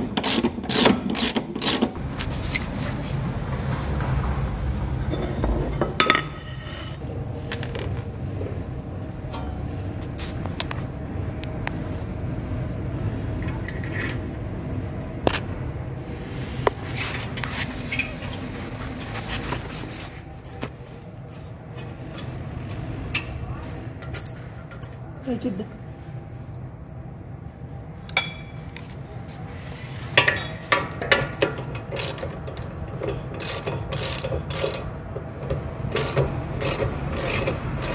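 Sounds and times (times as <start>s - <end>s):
steady low hum: 1.9s - 37.9s
metal clinks and scrapes of tools: 5.1s - 7.0s, 17.1s - 20.7s.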